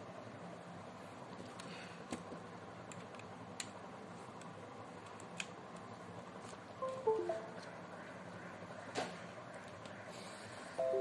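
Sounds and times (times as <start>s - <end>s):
faint steady hum: 0.0s - 11.0s
laptop chime: 6.8s - 7.6s, 10.8s - 11.0s.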